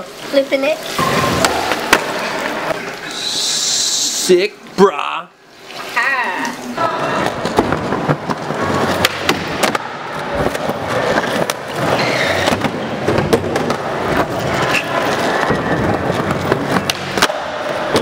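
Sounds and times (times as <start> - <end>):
skateboard wheels rolling on concrete: 7.2 - 18.0.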